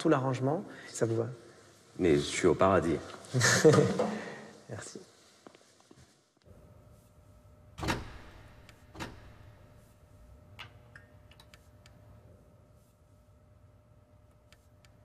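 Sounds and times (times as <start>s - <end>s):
faint steady hum: 0.0s - 15.0s.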